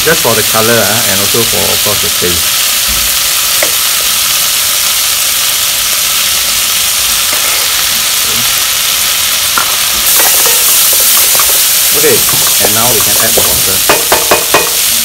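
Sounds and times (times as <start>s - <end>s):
food sizzling in a pot: 0.0s - 15.0s.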